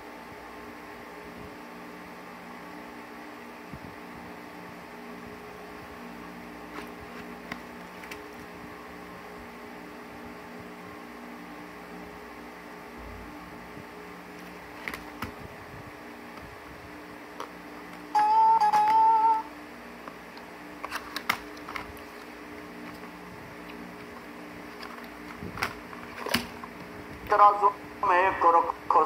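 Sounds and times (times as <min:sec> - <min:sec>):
electrical hum and hiss: 0:00.0 - 0:29.0
low held tones: 0:18.1 - 0:19.5.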